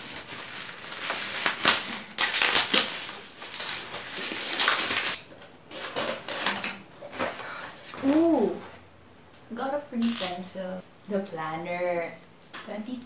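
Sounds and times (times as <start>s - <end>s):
plastic mailer crinkling: 0.0s - 7.4s.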